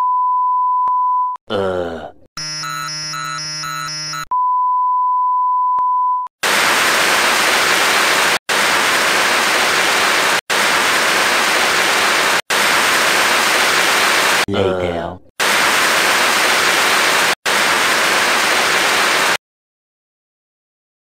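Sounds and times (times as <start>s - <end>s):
synthetic beep chord: 2.4s - 5.0s
loud static hiss: 6.4s - 14.4s, 15.4s - 19.4s.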